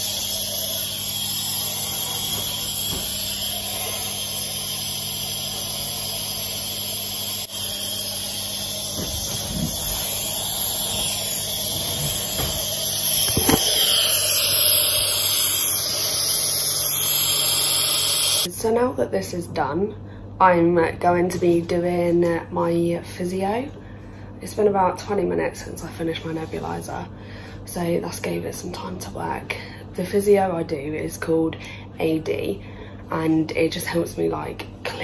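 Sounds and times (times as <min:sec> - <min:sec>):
nebulizer gas hissing: 0:00.0 - 0:18.5.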